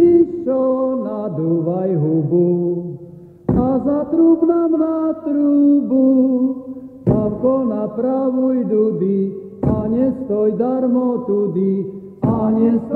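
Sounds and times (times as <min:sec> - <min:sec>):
voices singing a folk chant: 0:07.1 - 0:12.9.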